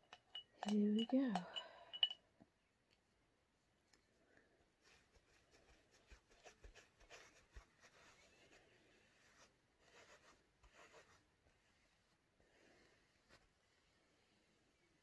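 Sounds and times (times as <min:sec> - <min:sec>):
paintbrush scratching on canvas: 0:04.9 - 0:11.9.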